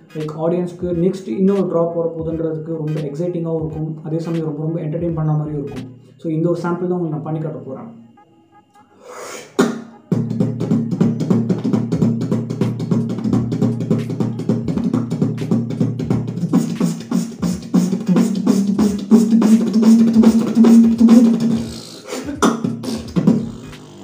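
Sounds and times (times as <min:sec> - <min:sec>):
beatboxing kick-drum roll: 0:00.1 - 0:06.0, 0:09.0 - 0:24.0
beatboxing hissing snare hits: 0:02.9 - 0:03.2, 0:05.7 - 0:06.0, 0:09.0 - 0:24.0.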